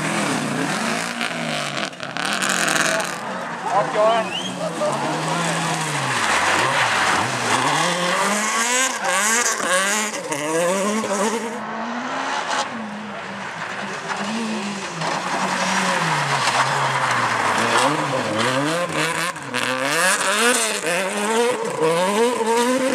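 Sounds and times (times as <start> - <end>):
tyres on gravel: 0.0 - 11.6, 12.6 - 22.9
rally car engines revving: 0.0 - 22.9.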